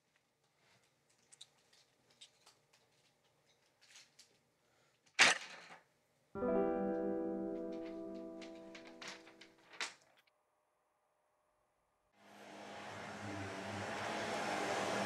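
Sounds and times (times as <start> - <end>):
piano chord ringing: 6.4 - 9.5
paper rustling: 7.7 - 10.2.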